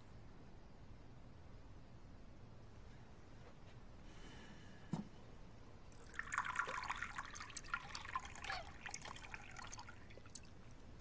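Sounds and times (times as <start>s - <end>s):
wine pouring into cup: 5.9s - 10.8s.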